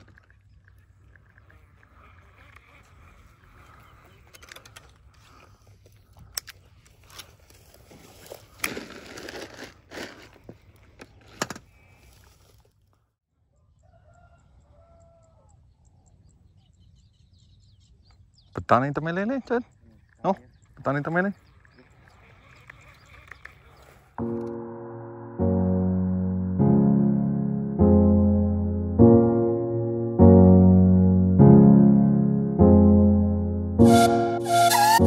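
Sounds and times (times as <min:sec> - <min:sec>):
rustling: 0:06.6 - 0:12.9
rooster crowing: 0:13.5 - 0:15.6.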